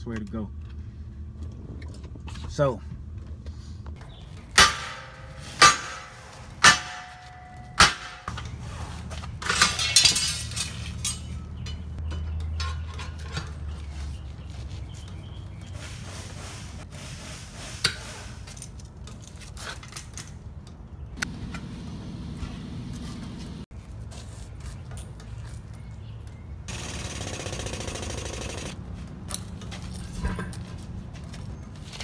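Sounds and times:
metal tools clinking on steel rim: 9.4 - 13.8, 17.8 - 20.8
rushing air from air hose: 15.8 - 18.5.

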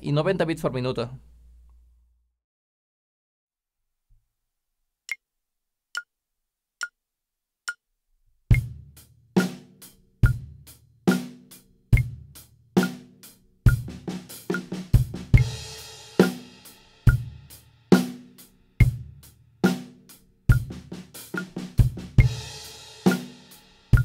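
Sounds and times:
bass drum: 8.5 - 9.6, 10.2 - 11.4, 12.0 - 13.0, 13.7 - 16.4, 17.1 - 17.5, 18.8 - 19.3, 20.5 - 23.3
snare drum: 9.4 - 12.2, 12.8 - 19.0, 19.7 - 24.0
metronome clicking: 12.0 - 13.1, 13.7 - 15.6, 20.5 - 22.4, 23.0 - 23.4.

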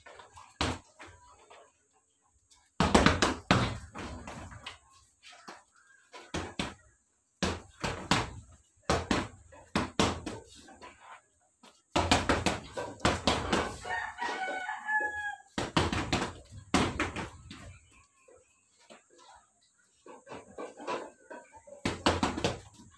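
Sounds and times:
rooster crowing: 13.7 - 15.6.

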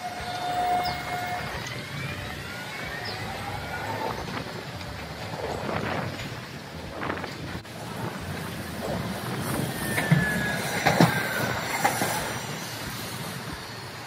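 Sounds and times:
tram wheels squealing on rails: 0.0 - 14.0
wheels knocking on track: 0.0 - 14.0.

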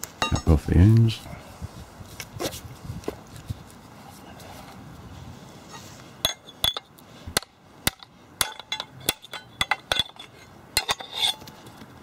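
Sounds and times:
hand tool striking metal: 6.2 - 11.5.

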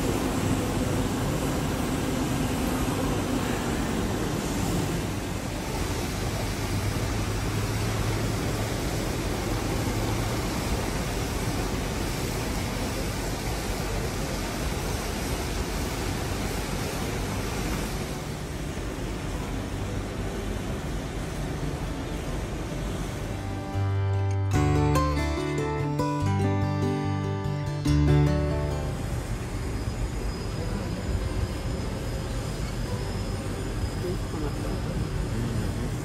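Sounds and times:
churning water: 0.0 - 23.5
low machine hum: 0.0 - 36.0
wind: 0.0 - 36.0.

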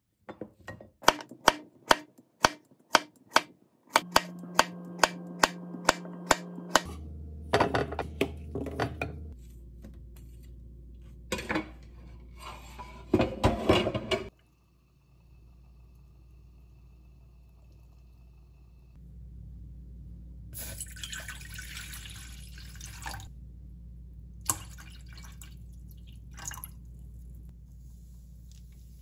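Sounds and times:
knife chopping on cutting board: 1.0 - 7.0.

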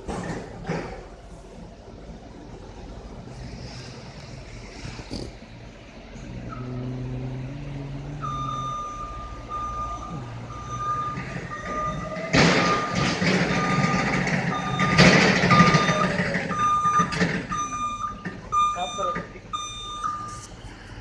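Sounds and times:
truck drive rushing and humming: 0.0 - 21.0
truck alarm beeping: 6.3 - 20.7.

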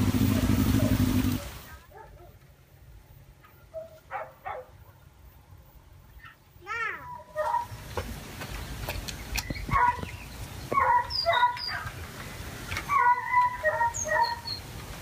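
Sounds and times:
faint high bird chirps: 9.3 - 11.9, 13.0 - 14.7
animal yelping: 10.7 - 12.0, 12.8 - 14.6.

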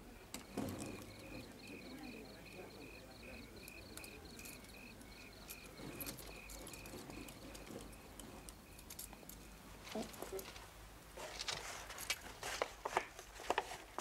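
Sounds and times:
crickets chirping: 0.0 - 9.6.

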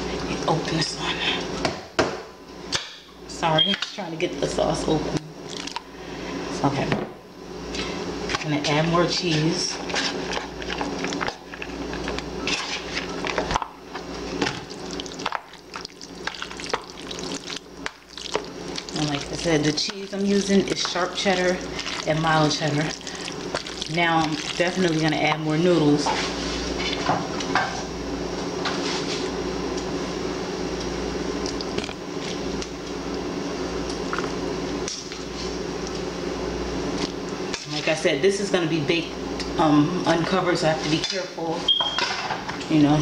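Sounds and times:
low background hum: 0.0 - 43.0
spoon stirring wet food: 8.3 - 25.4
spoon scraping food in a bowl: 9.2 - 13.6.

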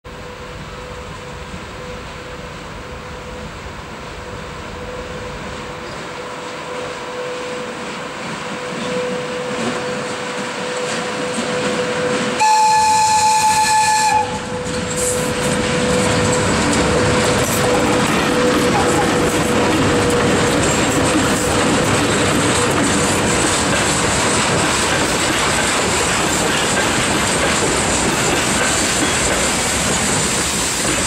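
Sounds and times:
electric locomotive running noise: 0.1 - 31.0
high-pitched train whistle: 8.5 - 19.2.

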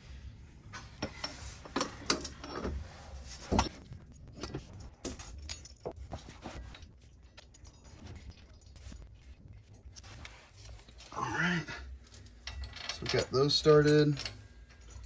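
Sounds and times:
metal bolts clinking: 1.0 - 2.8, 3.5 - 9.0, 12.2 - 15.0.

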